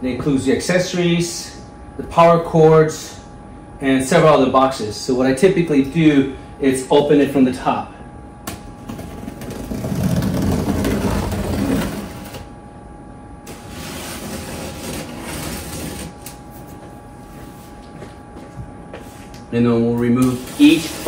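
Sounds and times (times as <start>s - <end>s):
blade scraping cardboard: 8.9s - 12.4s, 13.5s - 16.3s.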